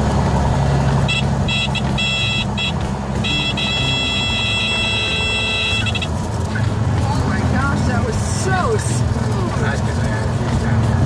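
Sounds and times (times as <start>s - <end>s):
propeller plane engine drone: 0.0s - 11.0s
high-pitched warning tone: 1.1s - 6.1s.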